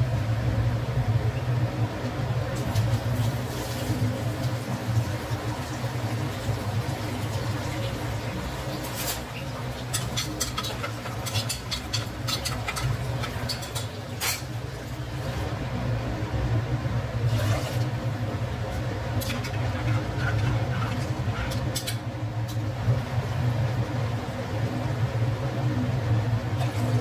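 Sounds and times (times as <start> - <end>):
steady low hum: 0.0 - 27.0
spatula scraping cooker: 8.9 - 14.6, 19.2 - 22.1.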